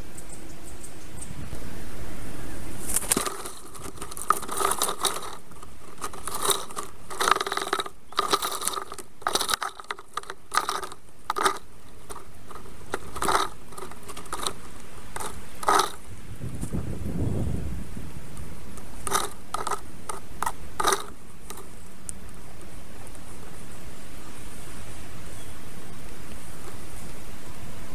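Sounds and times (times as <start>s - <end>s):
sticks clicking and scraping: 2.8s - 16.8s, 18.7s - 23.2s.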